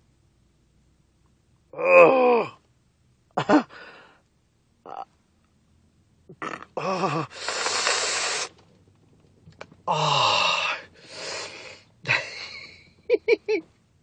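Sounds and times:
man groaning in pain: 0:01.8 - 0:02.6, 0:06.8 - 0:07.3, 0:09.9 - 0:10.8
long hissing breaths: 0:07.3 - 0:08.6, 0:09.9 - 0:12.0.

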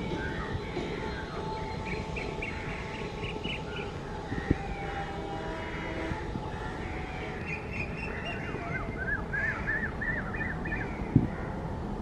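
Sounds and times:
birds chirping: 0:00.0 - 0:05.1, 0:05.8 - 0:11.6
distant train rumble: 0:00.0 - 0:12.0.

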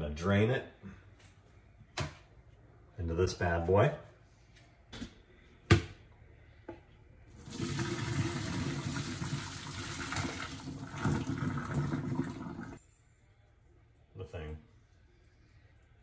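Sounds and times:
water pouring into sink: 0:07.4 - 0:12.8.

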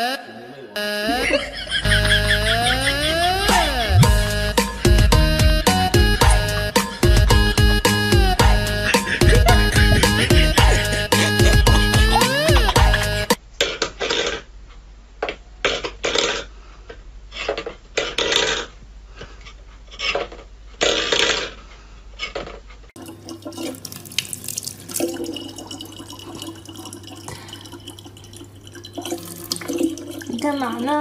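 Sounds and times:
tap water trickling into bottle: 0:23.0 - 0:30.6.

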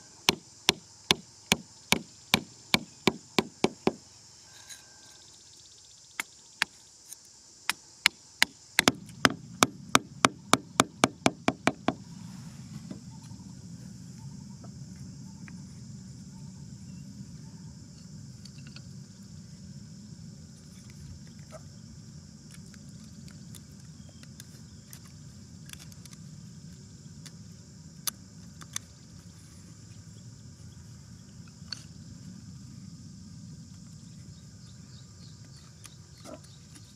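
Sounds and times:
hammer striking wooden stake: 0:00.2 - 0:04.0, 0:07.7 - 0:12.0.

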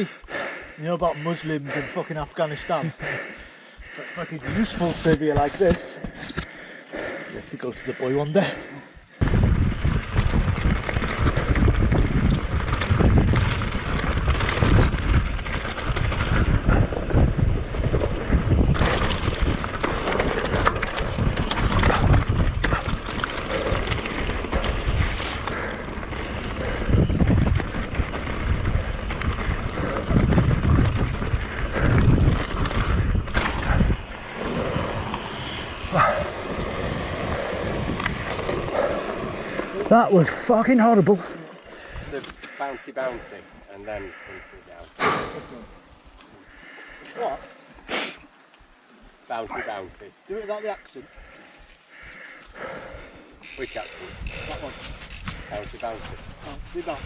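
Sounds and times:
tyres rumbling over loose stones: 0:04.0 - 0:06.5, 0:09.1 - 0:42.6, 0:53.5 - 0:57.0
bike knocking and rattling: 0:04.4 - 0:42.6, 0:50.5 - 0:57.0
wind rushing over microphone: 0:09.1 - 0:40.4, 0:54.0 - 0:57.0.

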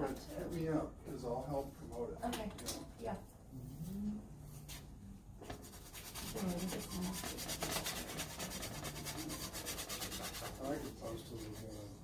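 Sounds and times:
paintbrush scrubbing on canvas: 0:05.4 - 0:12.0.

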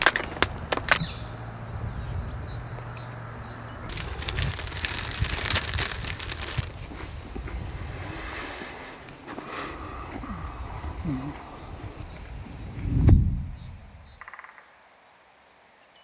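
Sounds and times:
plastic bag rustling: 0:00.0 - 0:01.1, 0:03.9 - 0:07.4
snack packet crinkling: 0:00.0 - 0:01.1, 0:03.9 - 0:07.2.

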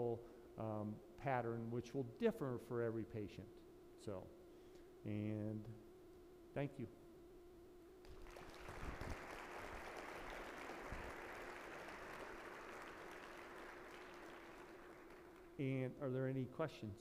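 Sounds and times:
audience applauding: 0:08.1 - 0:15.6.

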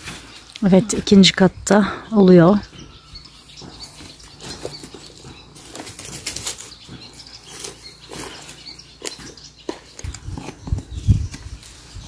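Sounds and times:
footsteps on dry leaves and stones: 0:03.6 - 0:12.0.

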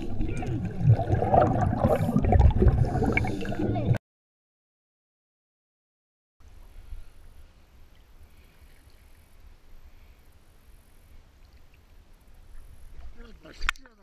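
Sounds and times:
small ticks and splashes: 0:11.4 - 0:14.0.

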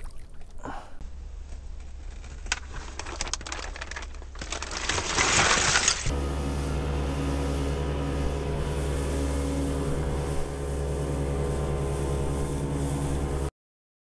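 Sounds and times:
boat engine running: 0:06.1 - 0:13.5
wind and water rushing: 0:06.1 - 0:13.5.

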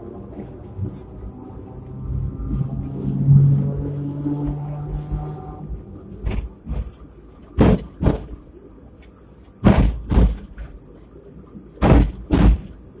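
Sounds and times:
low running rumble: 0:00.0 - 0:13.0
tram wheels clacking over rail joints: 0:06.0 - 0:13.0.

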